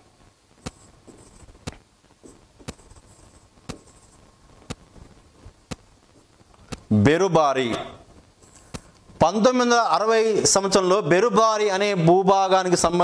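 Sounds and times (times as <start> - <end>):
faint scratching: 0.5 - 6.9, 8.0 - 9.0.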